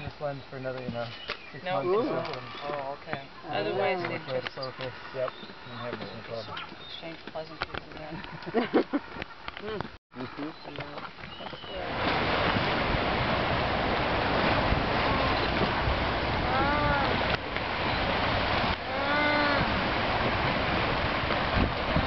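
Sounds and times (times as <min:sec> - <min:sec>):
wind and surf rushing: 0:11.2 - 0:22.0
sea lion calling: 0:15.0 - 0:15.6, 0:16.4 - 0:18.1, 0:18.8 - 0:19.8.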